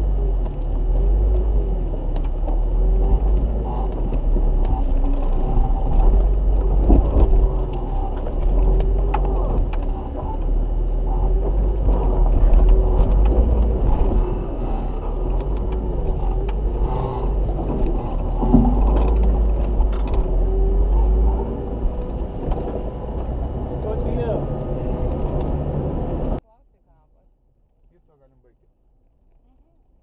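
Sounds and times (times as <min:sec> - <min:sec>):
engine running at low revs: 0:00.0 - 0:26.4
sharp clicks and knocks: 0:00.4 - 0:25.6.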